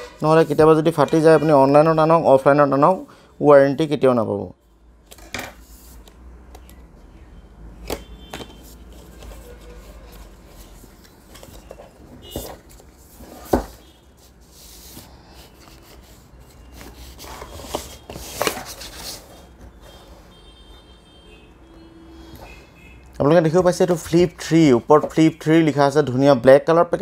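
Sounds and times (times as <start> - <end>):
cardboard scraping and rustling: 8.3 - 20.2.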